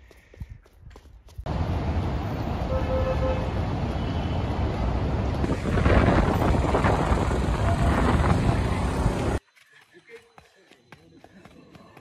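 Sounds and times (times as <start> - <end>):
busy street din: 1.5 - 9.4
traffic passing: 1.5 - 9.4
wind on microphone: 5.3 - 9.4.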